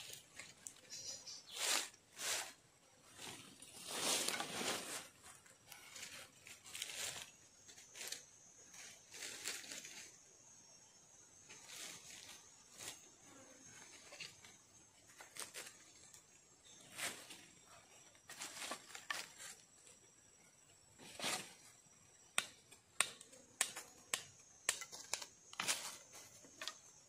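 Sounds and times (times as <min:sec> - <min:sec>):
dry leaves and sticks rustling: 0:00.0 - 0:10.2, 0:11.4 - 0:19.9, 0:22.4 - 0:27.0.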